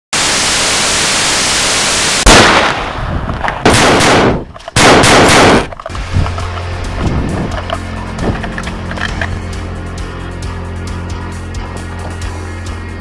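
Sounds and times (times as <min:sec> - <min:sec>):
static hiss: 0:00.2 - 0:02.2
loud crack: 0:02.1 - 0:05.9
gunfire bursts: 0:02.2 - 0:05.8.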